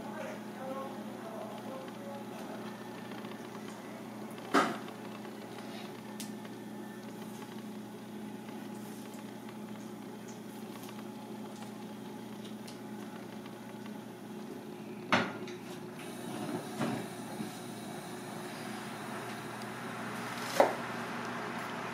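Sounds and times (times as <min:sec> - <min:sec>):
kitchen ventilation hum: 0:00.0 - 0:21.9.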